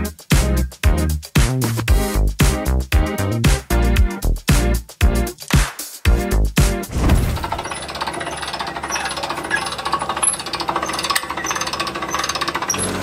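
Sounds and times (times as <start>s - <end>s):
music with a beat: 0.0s - 6.9s
trailer winch ratcheting: 7.2s - 13.0s.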